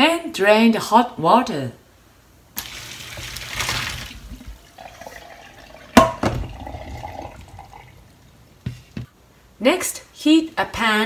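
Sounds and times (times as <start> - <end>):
water pouring into sink: 2.6 - 8.3
metal pot clanking on sink: 5.9 - 6.8.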